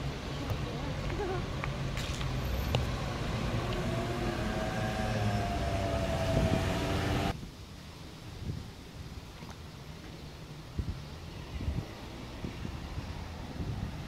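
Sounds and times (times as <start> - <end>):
city traffic: 0.0 - 7.4, 9.3 - 14.0
emergency vehicle engine rumble: 2.4 - 7.4
wavering high siren tone: 3.4 - 7.3.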